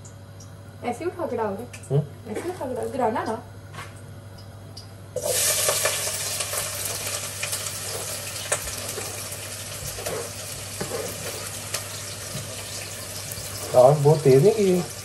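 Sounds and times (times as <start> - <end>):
oil crackles and pops: 1.7 - 15.0
onion sizzling in oil: 5.2 - 15.0.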